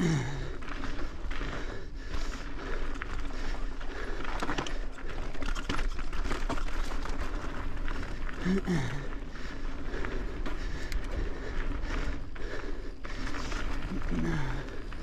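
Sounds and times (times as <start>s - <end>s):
bike rattling: 0.0s - 15.0s
tyres crunching over stones: 0.0s - 15.0s.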